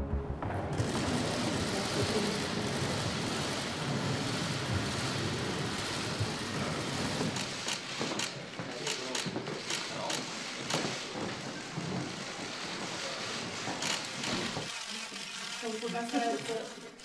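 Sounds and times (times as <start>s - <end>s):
crowd hubbub: 0.7s - 7.9s
camera shutters clicking: 7.4s - 10.8s, 13.8s - 16.8s.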